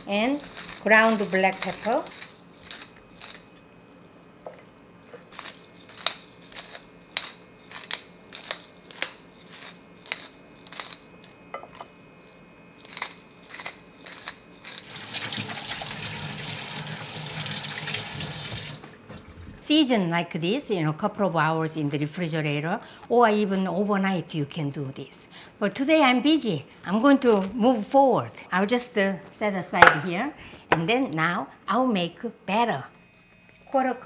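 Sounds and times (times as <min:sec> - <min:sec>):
pepper grinder crunchy clicks: 0:00.3 - 0:03.7, 0:05.1 - 0:15.4
faucet running into metal sink: 0:14.9 - 0:18.8.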